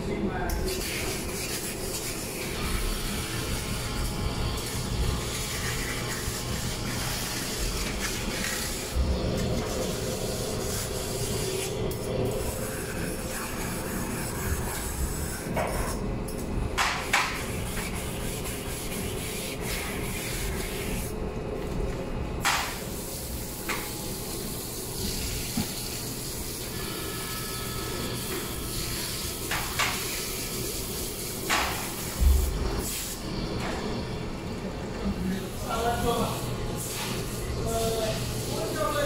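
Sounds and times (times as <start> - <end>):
grill brick scrubbing griddle: 0.7 - 16.0, 17.0 - 21.2.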